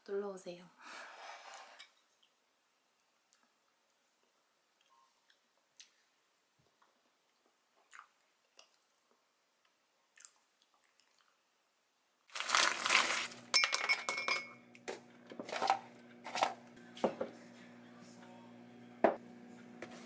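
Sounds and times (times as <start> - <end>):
frozen shrimp clinking in glass mug: 12.4 - 14.6.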